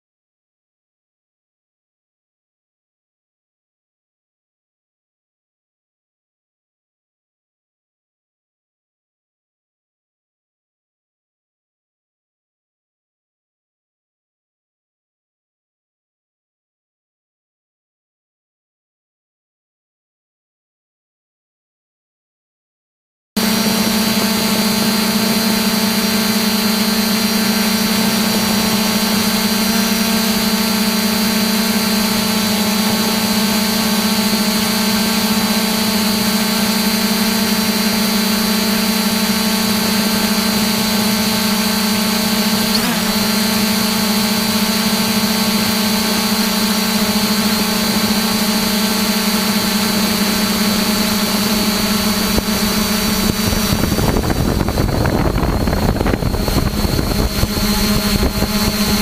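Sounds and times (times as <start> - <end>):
drone propellers whining: 23.4 - 59.0.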